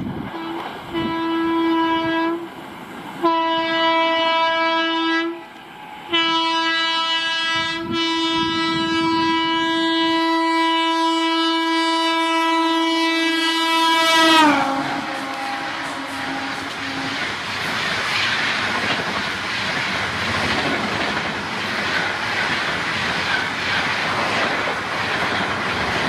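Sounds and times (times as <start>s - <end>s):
train running rumble: 0.0s - 26.0s
train horn blasts: 0.3s - 2.5s, 3.2s - 17.4s.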